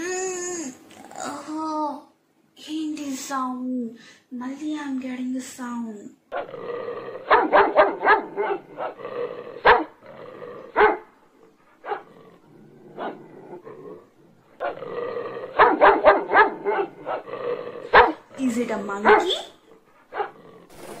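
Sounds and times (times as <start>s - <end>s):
dog growling: 6.3s - 21.0s
dog barking: 7.3s - 9.0s, 9.6s - 10.0s, 10.7s - 11.1s, 11.8s - 12.1s, 13.0s - 13.2s, 15.6s - 17.3s, 17.9s - 18.2s, 19.0s - 20.4s.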